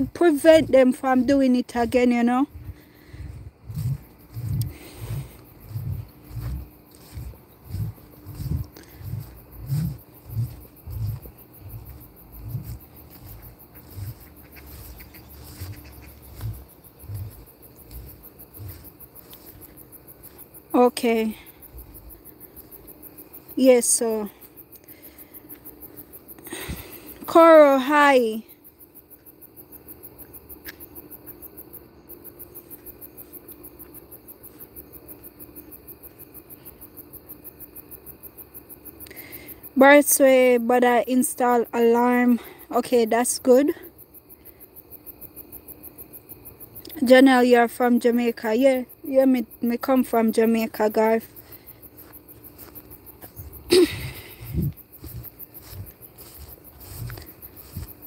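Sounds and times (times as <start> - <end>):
footsteps on grass: 0.0 - 27.1, 50.3 - 58.0
crickets chirping: 0.0 - 58.0.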